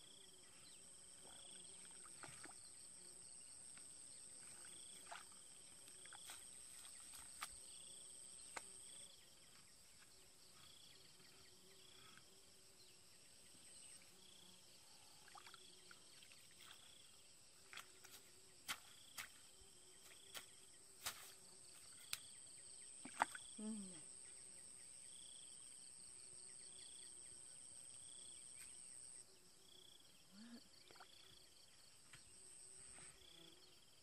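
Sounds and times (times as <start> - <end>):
insect trill and chirps: 0.0 - 34.0
hoe striking muddy ground: 18.0 - 19.4.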